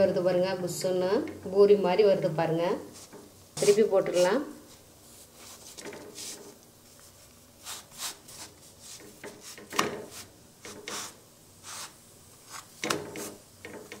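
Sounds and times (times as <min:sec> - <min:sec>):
dough scraping on griddle: 0:02.9 - 0:06.6, 0:07.6 - 0:14.0.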